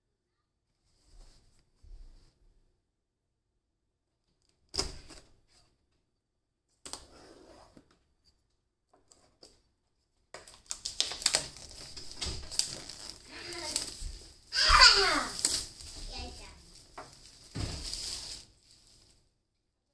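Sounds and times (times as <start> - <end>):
plastic film crinkling: 10.5 - 19.2
knife scraping plastic shrink-wrap: 10.6 - 18.5.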